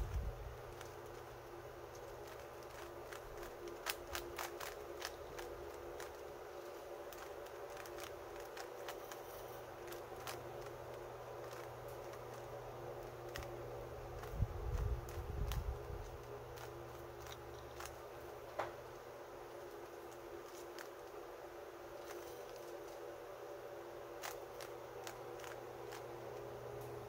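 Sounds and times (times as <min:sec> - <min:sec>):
faint hum: 0:00.0 - 0:27.0
puzzle cube clicking: 0:02.2 - 0:06.2.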